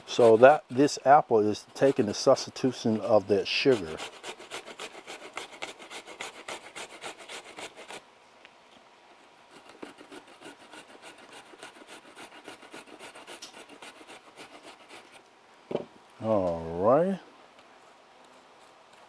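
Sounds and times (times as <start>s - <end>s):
apple rasping on a grater: 0.0s - 1.0s, 1.8s - 8.0s, 9.5s - 15.2s.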